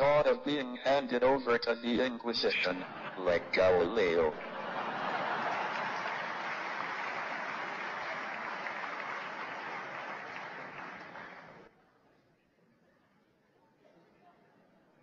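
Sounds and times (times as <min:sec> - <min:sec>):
audience applauding: 0:04.6 - 0:11.7.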